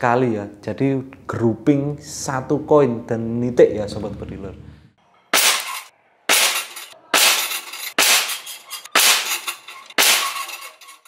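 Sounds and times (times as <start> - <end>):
metallic ring of steel target: 5.4 - 11.0.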